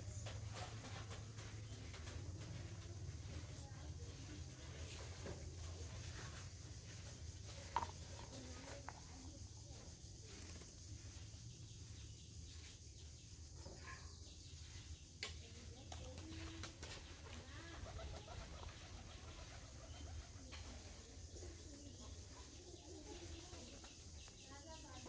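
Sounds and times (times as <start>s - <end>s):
pigeons cooing: 16.4s - 23.4s.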